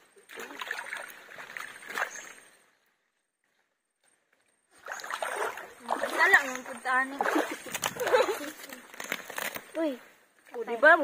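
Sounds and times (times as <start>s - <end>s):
water sloshing: 0.0s - 11.0s
hands squelching in wet mud: 4.8s - 9.7s.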